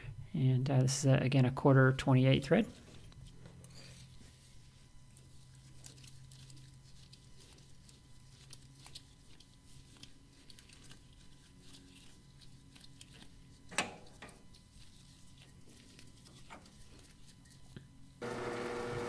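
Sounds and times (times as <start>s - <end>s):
die cutting ticks and crackles: 5.2s - 17.8s.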